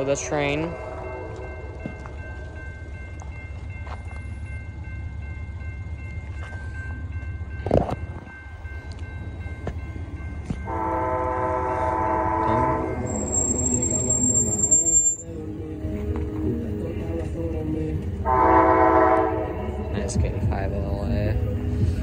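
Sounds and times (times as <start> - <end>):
crossing bell ringing: 0.0 - 22.0
locomotive air horn: 10.7 - 14.3, 18.2 - 19.8.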